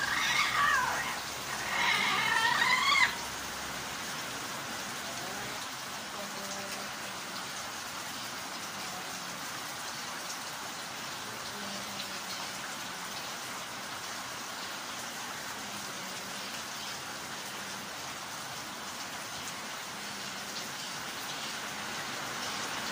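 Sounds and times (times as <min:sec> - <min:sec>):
steady hissing noise: 0:00.0 - 0:09.4.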